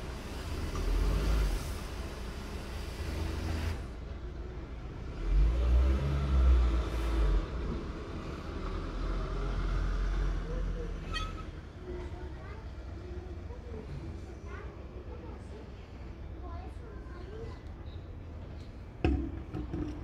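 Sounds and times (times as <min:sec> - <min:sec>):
low traffic rumble: 0:00.0 - 0:20.0
car engine accelerating past: 0:05.1 - 0:07.6.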